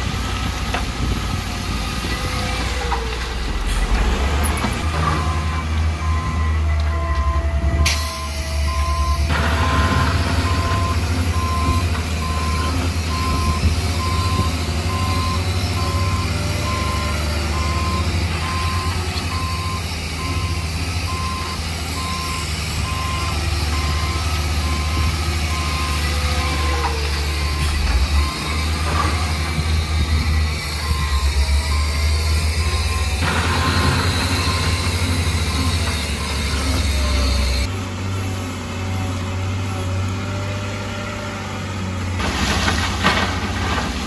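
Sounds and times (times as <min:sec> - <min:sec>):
diesel engine droning: 0:00.0 - 0:44.0
reversing alarm beeps: 0:05.2 - 0:29.0, 0:30.0 - 0:37.7.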